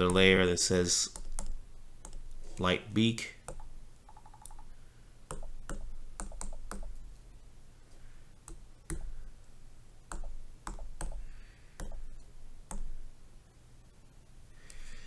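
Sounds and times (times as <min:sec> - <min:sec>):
steady low hum: 0:00.0 - 0:15.0
taps on touchscreen keyboard: 0:03.5 - 0:04.7, 0:05.3 - 0:06.9, 0:11.8 - 0:12.0.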